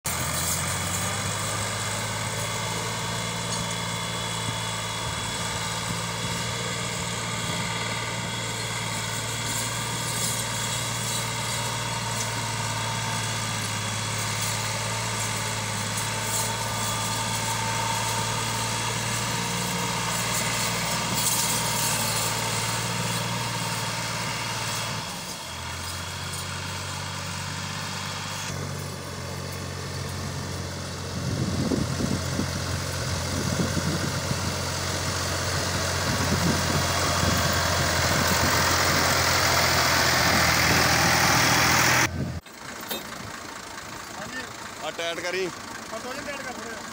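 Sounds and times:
tractor diesel engine running: 0:00.0 - 0:46.9.

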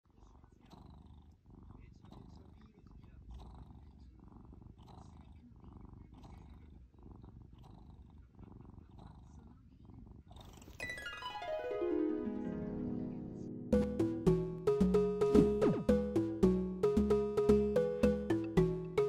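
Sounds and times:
cat purring: 0:00.0 - 0:10.8, 0:13.8 - 0:19.0
music: 0:10.8 - 0:19.0.

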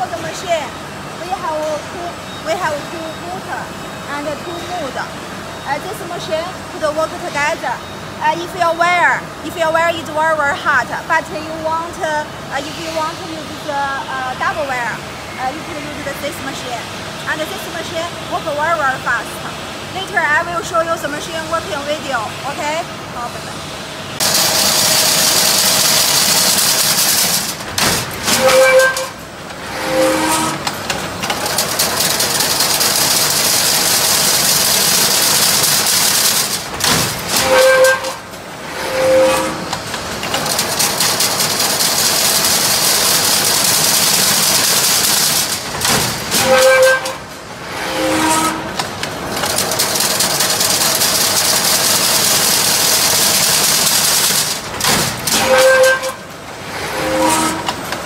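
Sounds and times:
weaving machine hiss and whir: 0:11.5 - 0:58.0.

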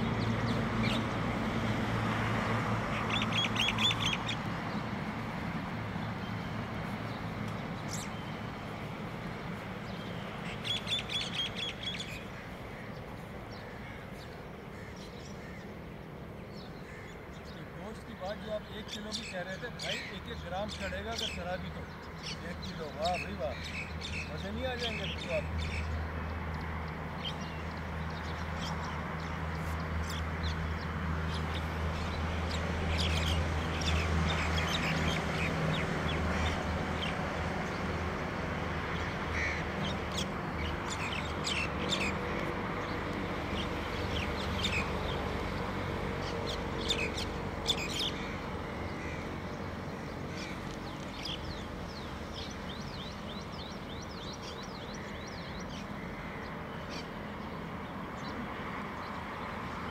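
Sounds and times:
flock of birds calling: 0:02.4 - 0:59.9.

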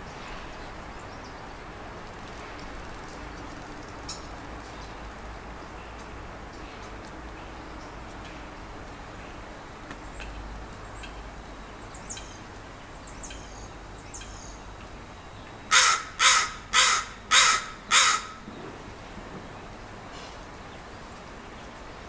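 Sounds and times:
loud harsh bird calls: 0:15.7 - 0:18.8.

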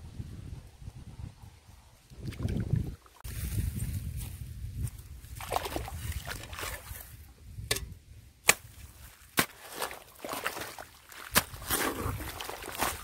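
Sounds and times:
water sloshing and trickling: 0:05.2 - 0:07.3, 0:08.9 - 0:13.0
hoe chopping wet soil: 0:07.7 - 0:13.0.

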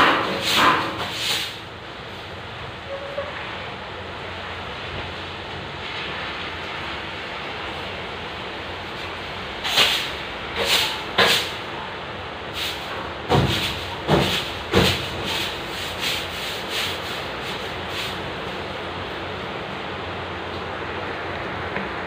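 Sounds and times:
broom bristles scraping: 0:00.0 - 0:01.6, 0:12.6 - 0:18.7
background hiss: 0:03.6 - 0:21.0.

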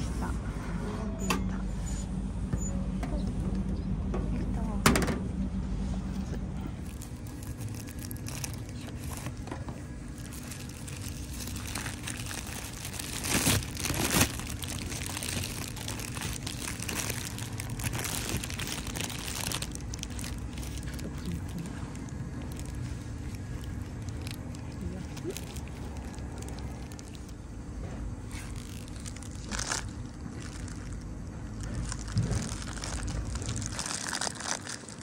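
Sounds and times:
wrapper crinkling: 0:06.8 - 0:27.5, 0:28.2 - 0:35.0.

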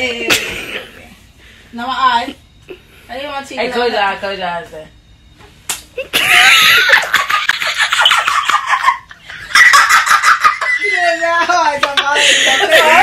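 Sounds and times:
women shrieking with laughter: 0:06.1 - 0:13.0.

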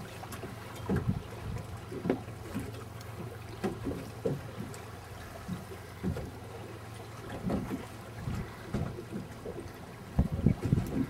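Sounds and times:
boat engine hum: 0:00.0 - 0:11.0
water slapping hull: 0:00.0 - 0:11.0
wind on microphone: 0:10.1 - 0:11.0.

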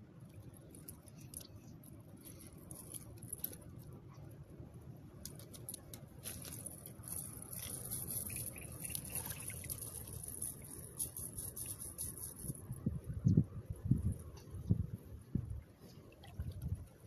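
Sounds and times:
wet net rustling and dripping: 0:00.2 - 0:04.2, 0:05.1 - 0:12.8, 0:15.4 - 0:17.0.

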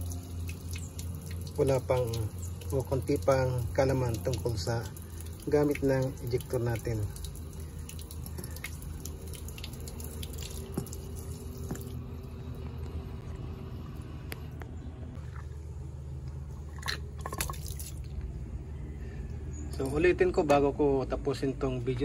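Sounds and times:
water splashing on concrete: 0:00.0 - 0:12.2, 0:16.4 - 0:18.2
water pouring: 0:00.0 - 0:13.0, 0:15.2 - 0:18.2
steady low hum: 0:00.0 - 0:22.0.

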